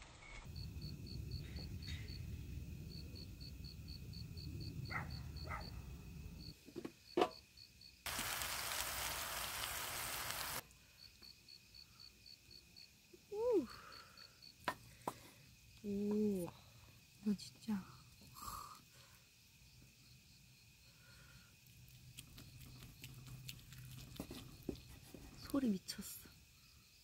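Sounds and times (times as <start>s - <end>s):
crickets chirping: 0.2s - 27.0s
loud steady hiss: 8.1s - 10.6s.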